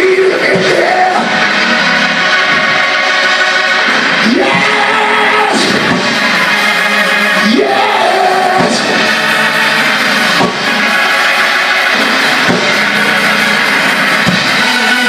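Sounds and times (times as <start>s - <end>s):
live church band music: 0.0s - 15.0s
sharp drum hits: 5.6s - 6.2s, 10.4s - 10.7s, 12.0s - 13.1s.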